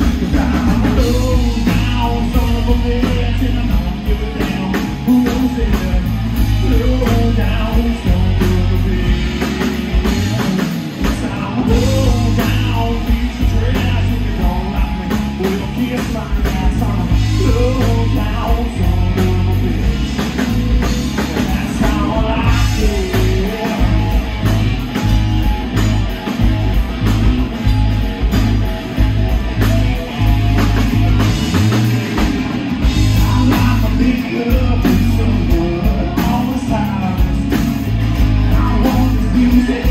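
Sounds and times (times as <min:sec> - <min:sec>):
man singing into microphone: 0:00.0 - 0:09.6, 0:10.3 - 0:20.4, 0:21.4 - 0:24.3, 0:33.0 - 0:37.6, 0:38.4 - 0:39.9
live rock band playing: 0:00.0 - 0:39.9.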